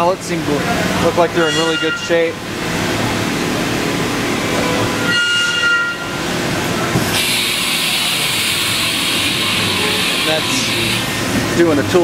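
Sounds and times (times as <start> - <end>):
running machines din: 6.6 - 12.0
steady hiss: 7.1 - 11.4
short high whine: 7.2 - 11.4.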